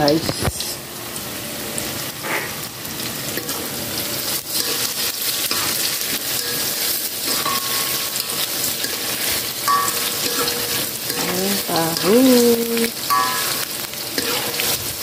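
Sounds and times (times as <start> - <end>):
tofu deep-frying in oil: 0.0 - 15.0
spatula stirring: 4.3 - 15.0.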